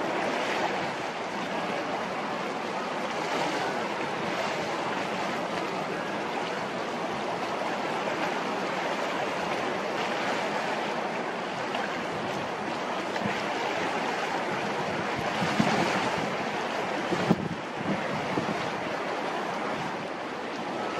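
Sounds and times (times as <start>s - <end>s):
choppy water rushing: 0.0s - 20.9s
wind on microphone: 14.4s - 19.0s.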